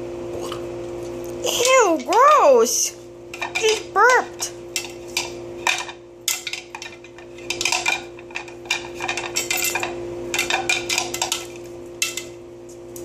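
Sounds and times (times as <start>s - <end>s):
steady low hum: 0.0s - 13.0s
bowl clattering: 3.3s - 12.4s.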